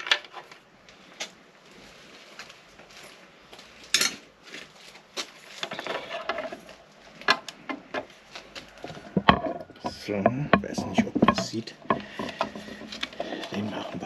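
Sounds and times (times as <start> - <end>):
hand tools clicking and clinking: 8.9 - 14.0.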